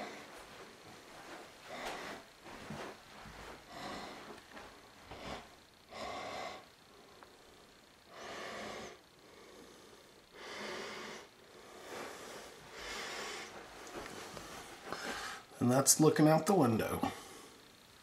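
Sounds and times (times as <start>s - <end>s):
person breathing noisily: 1.6s - 15.6s.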